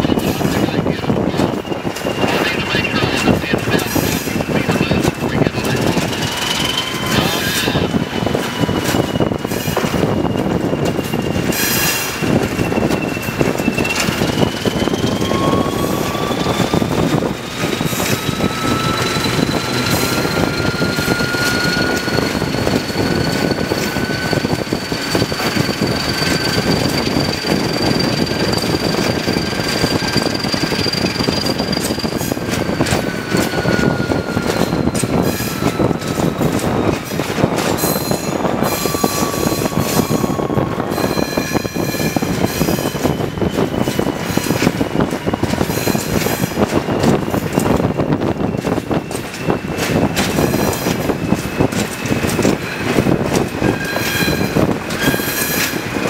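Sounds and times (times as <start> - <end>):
diesel locomotive engine whining: 0.0 - 56.0
road and wind noise: 0.0 - 56.0.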